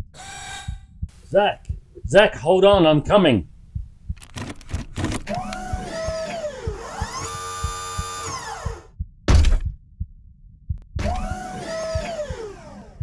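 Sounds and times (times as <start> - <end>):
electronic whirring tones: 0.0 - 0.9, 5.3 - 8.9, 11.0 - 13.0
low regular pulse: 0.0 - 13.0
heavy thud: 8.6 - 9.8.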